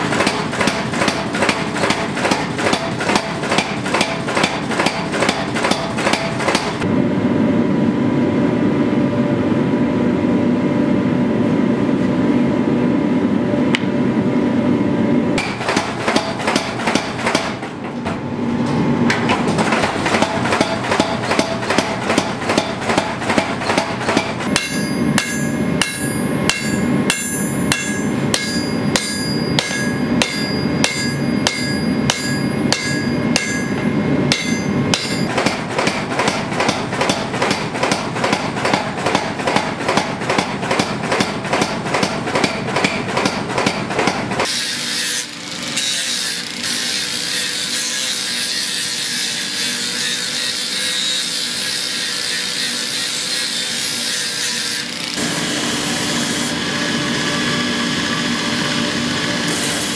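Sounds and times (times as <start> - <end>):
hammer ringing on anvil: 23.6 - 35.3
power tool grinding: 44.4 - 59.9.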